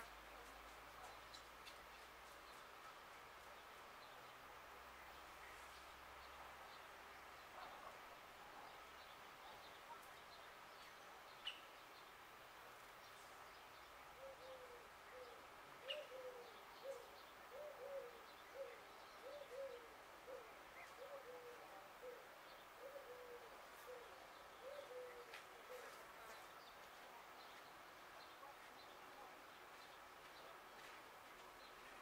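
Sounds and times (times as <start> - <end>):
small birds chirping: 0.0 - 32.0
dove cooing: 14.2 - 26.2.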